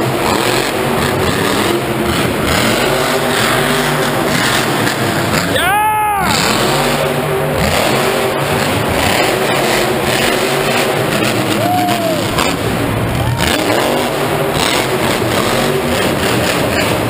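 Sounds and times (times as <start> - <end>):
monster truck engine revving: 0.0 - 17.0.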